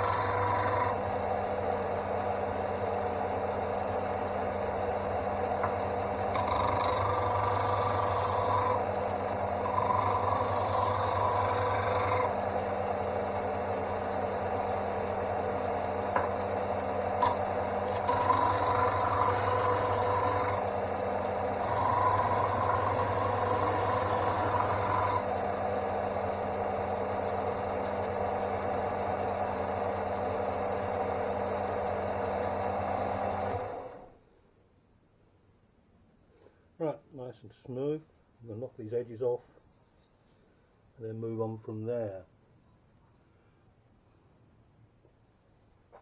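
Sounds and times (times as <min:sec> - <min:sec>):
wood rasping on sanding disc: 0:00.0 - 0:01.0, 0:05.6 - 0:08.9, 0:09.6 - 0:12.4, 0:17.2 - 0:20.7, 0:21.6 - 0:25.3
sander motor hum: 0:00.0 - 0:34.2.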